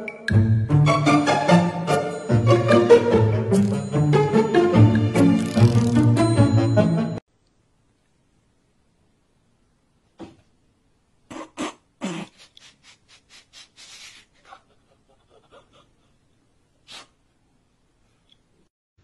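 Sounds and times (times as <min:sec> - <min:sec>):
person laughing in breathy bursts: 0:11.3 - 0:17.2.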